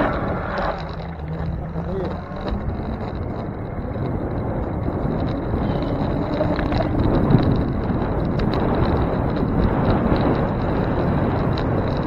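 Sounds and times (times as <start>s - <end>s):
low road rumble: 0.0s - 12.0s
wind buffeting microphone: 0.0s - 12.0s.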